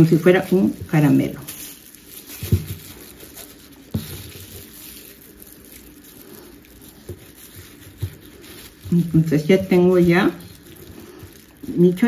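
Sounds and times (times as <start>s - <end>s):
plastic bag crinkling: 0.0s - 12.0s.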